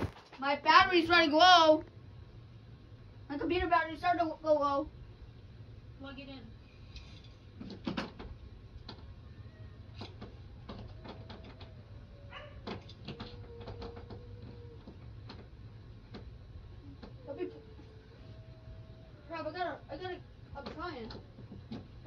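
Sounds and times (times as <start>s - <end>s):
steady low hum: 0.0s - 22.0s
clicks and knocks of handling: 12.6s - 16.3s.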